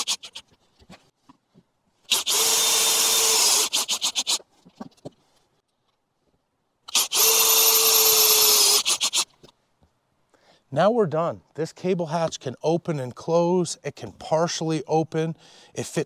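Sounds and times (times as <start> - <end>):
cordless drill driving screws: 2.1 - 4.4, 6.9 - 9.3.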